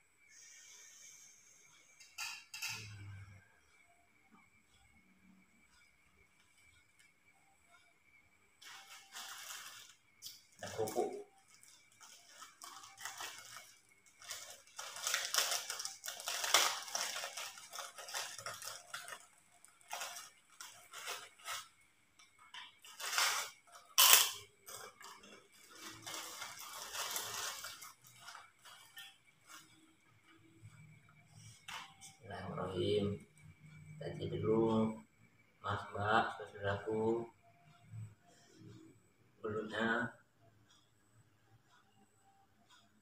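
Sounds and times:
plastic bag crinkling: 8.6 - 10.0, 10.6 - 21.7, 22.9 - 29.0
crackers snapped and crushed: 12.0 - 21.6, 22.9 - 25.0.

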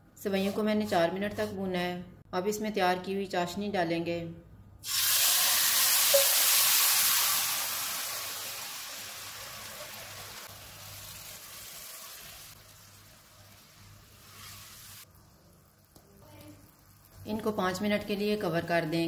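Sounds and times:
syrup sizzling in a pan: 4.8 - 17.2.

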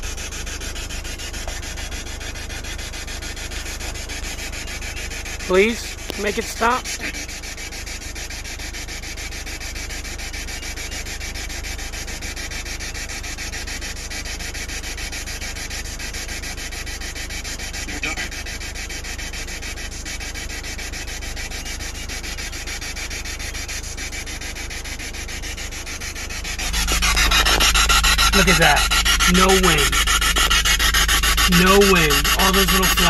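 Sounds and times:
insects buzzing: 0.0 - 33.0.

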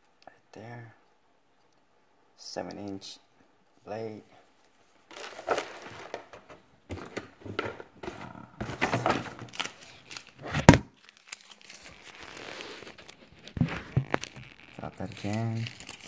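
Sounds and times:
faint steady hiss: 0.0 - 16.0
plastic packaging crinkling: 5.1 - 16.0.

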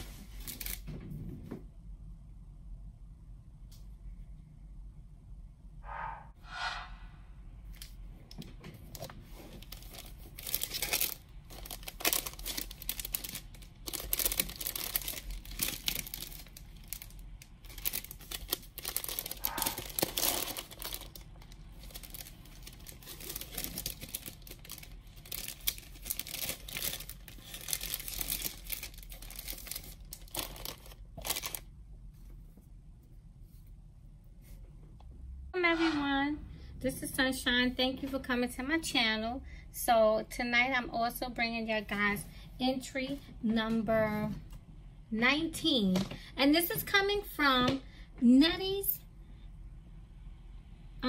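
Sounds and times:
cellophane crinkling: 0.0 - 0.9, 8.8 - 31.7.

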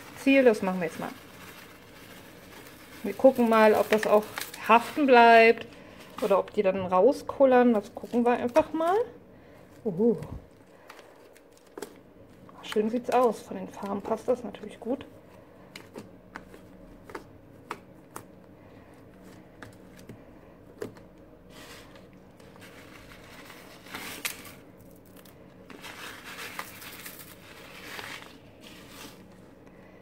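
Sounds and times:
beads rattling and rustling: 0.0 - 5.5, 22.5 - 29.4.

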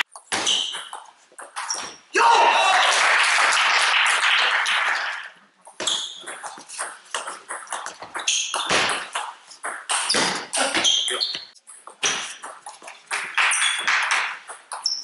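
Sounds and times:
applause: 2.6 - 5.4.

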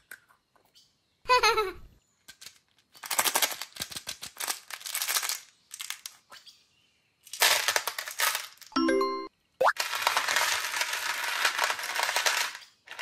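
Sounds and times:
candies clattering into tub: 2.3 - 6.2, 7.2 - 8.9, 9.7 - 13.0
candies rattling in plastic container: 2.3 - 6.2, 7.3 - 8.7, 9.8 - 13.0.

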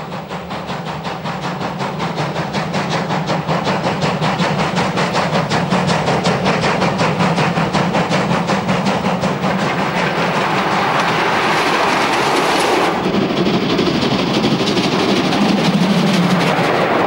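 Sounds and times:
steam locomotive exhaust beat: 0.0 - 17.0
rushing noise of passing engine: 9.5 - 17.0.

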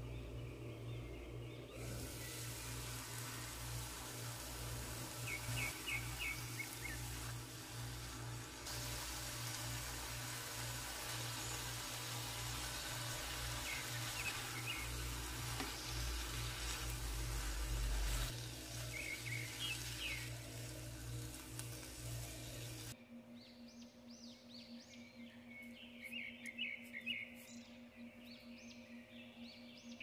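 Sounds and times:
low pulsing hum: 0.0 - 29.9
soft ambient music: 20.6 - 30.0.

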